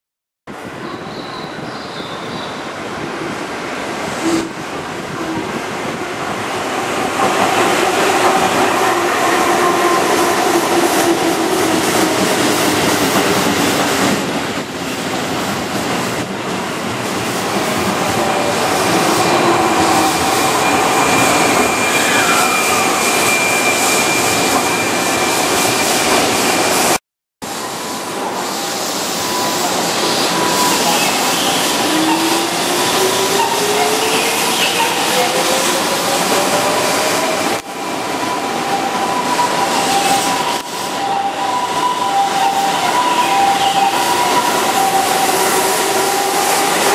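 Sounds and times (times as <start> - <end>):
high wheel squeal: 18.0 - 26.4, 27.7 - 37.6, 38.3 - 46.9.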